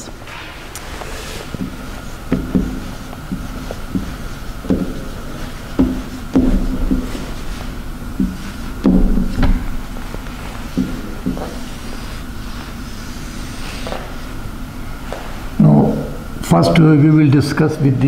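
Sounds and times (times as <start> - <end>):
marker writing on whiteboard: 0.8 - 14.4.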